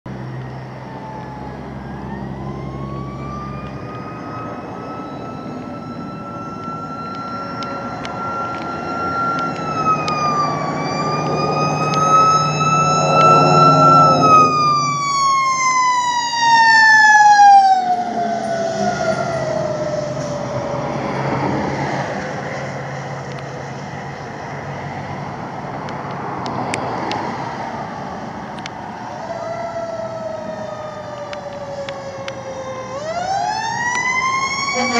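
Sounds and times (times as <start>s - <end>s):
low truck engine rumble: 0.1s - 26.4s
fire truck siren wailing: 0.2s - 26.1s, 26.8s - 34.9s.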